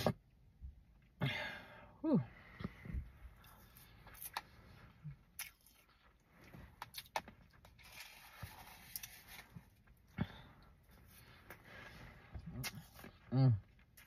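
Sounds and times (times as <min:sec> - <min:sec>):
crushed ice being chewed: 0:05.2 - 0:10.0.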